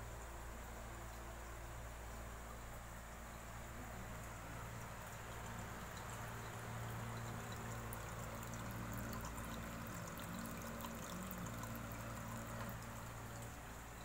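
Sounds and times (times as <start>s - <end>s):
water dripping: 4.1s - 14.0s
water pouring from a pipe: 4.2s - 14.0s.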